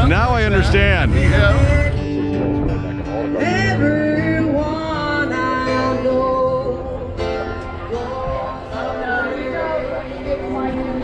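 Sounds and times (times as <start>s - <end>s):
country guitar: 0.0s - 11.0s
person singing: 3.3s - 11.0s.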